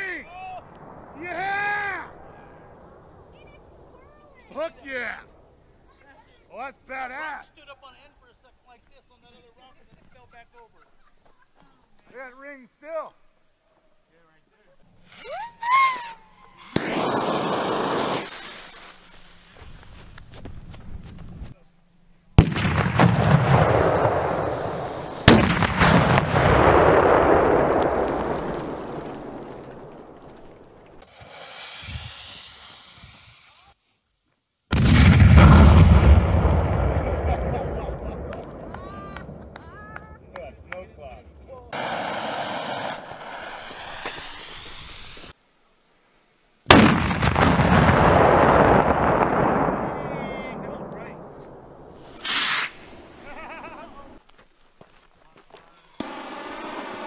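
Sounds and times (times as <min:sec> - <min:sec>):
firework explosion: 0:00.0 - 0:06.4, 0:15.0 - 0:20.8, 0:22.4 - 0:33.8, 0:34.7 - 0:40.3, 0:41.7 - 0:45.4, 0:46.6 - 0:54.2, 0:55.8 - 0:57.0
firework fuse hissing: 0:14.9 - 0:21.6, 0:22.4 - 0:26.2, 0:26.8 - 0:34.0, 0:41.7 - 0:57.0
firework shell bang: 0:25.3 - 0:28.4, 0:46.7 - 0:49.8, 0:50.6 - 0:52.9
long rushing noise: 0:41.8 - 0:45.4.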